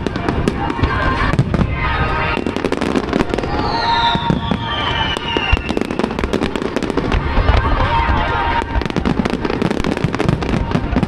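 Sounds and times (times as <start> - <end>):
fireworks bangs and crackles: 0.0 - 11.0
falling firework whistle: 1.8 - 6.7.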